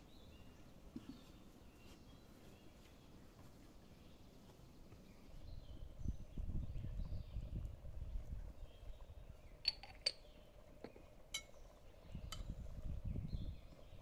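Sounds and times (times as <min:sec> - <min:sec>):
low uneven rumble: 0:04.9 - 0:14.0
crockery clinking on steel pot: 0:11.3 - 0:11.6.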